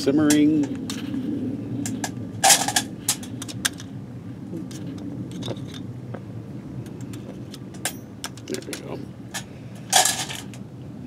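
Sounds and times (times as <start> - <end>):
metal clatter: 1.8 - 3.9, 7.1 - 10.6
metal clinks and scrapes: 1.8 - 3.9, 4.6 - 5.9, 7.0 - 10.6.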